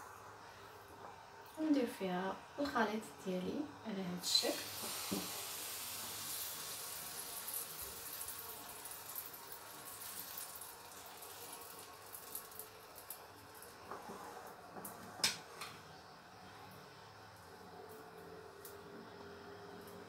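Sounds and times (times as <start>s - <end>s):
batter sizzling in a frying pan: 4.2s - 14.2s.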